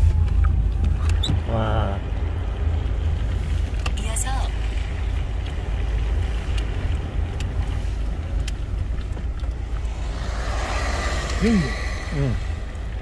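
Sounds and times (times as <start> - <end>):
car cabin road rumble: 0.0 - 13.0
hiss: 9.8 - 13.0.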